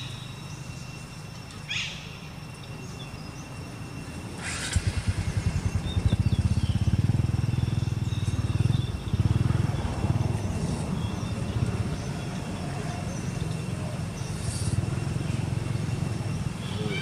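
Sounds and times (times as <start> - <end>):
motorcycle engine running: 4.4 - 17.0.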